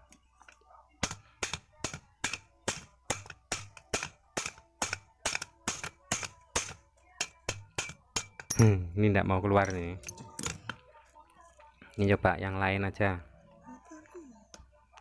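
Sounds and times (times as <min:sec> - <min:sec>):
hammer rapping on steel: 0:01.0 - 0:08.8.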